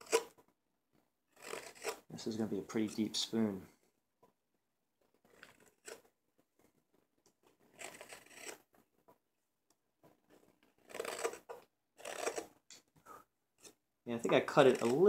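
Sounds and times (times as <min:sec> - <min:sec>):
knife shaving wood: 0:01.3 - 0:02.1, 0:05.0 - 0:06.0, 0:06.7 - 0:08.8, 0:10.0 - 0:12.6, 0:13.6 - 0:15.0.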